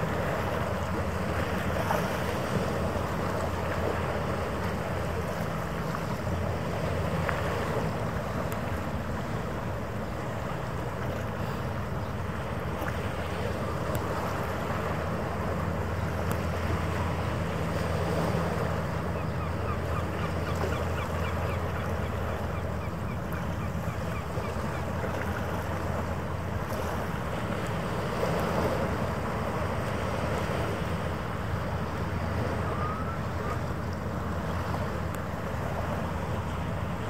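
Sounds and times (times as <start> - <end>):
harbour water washing: 0.0 - 37.0
ship engines droning: 0.0 - 37.0.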